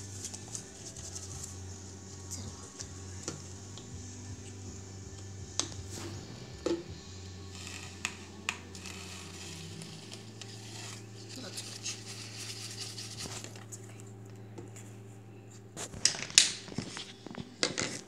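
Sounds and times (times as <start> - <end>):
paintbrush dabbing and scraping: 0.0 - 3.8, 7.5 - 14.0
steady low hum: 0.0 - 18.0.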